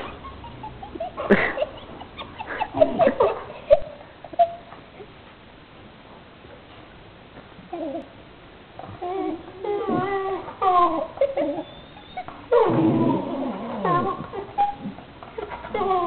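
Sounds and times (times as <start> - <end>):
dogs whining and yipping: 0.0 - 4.8, 8.8 - 16.0.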